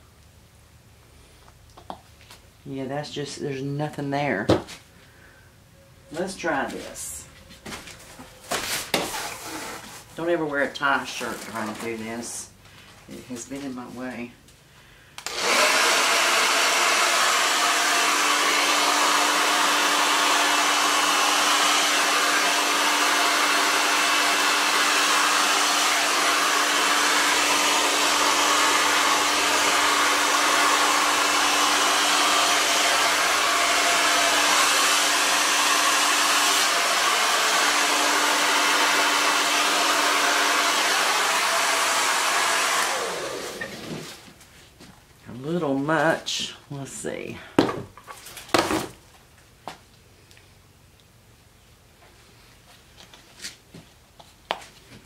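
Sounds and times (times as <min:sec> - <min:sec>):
hair dryer running: 0:15.2 - 0:44.2.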